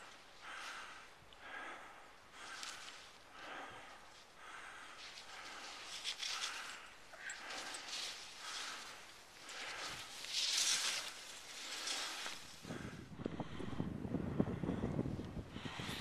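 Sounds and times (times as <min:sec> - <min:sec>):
skis swishing on snow: 0:07.6 - 0:12.8.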